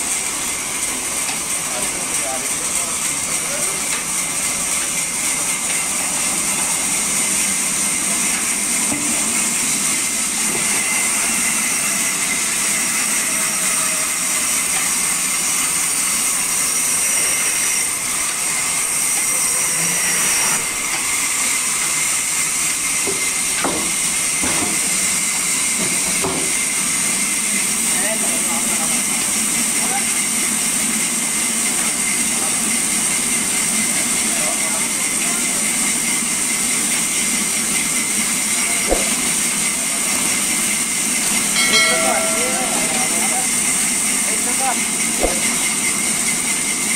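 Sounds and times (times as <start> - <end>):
band saw hissing through logs: 4.2 - 27.9, 35.0 - 41.6, 43.4 - 46.9
short knocks: 38.9 - 39.4, 45.2 - 45.7.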